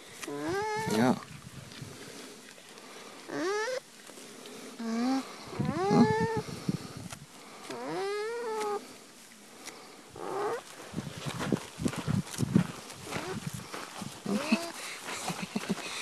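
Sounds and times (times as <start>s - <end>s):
alpaca humming: 0.2s - 2.3s, 3.2s - 6.9s, 7.6s - 8.9s, 10.2s - 10.7s, 14.2s - 16.0s.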